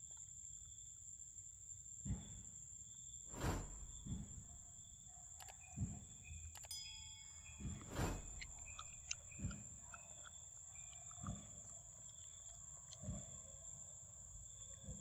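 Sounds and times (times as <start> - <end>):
sharp sweep: 3.3 - 4.6, 7.9 - 8.8
dull low thumps: 3.3 - 4.8.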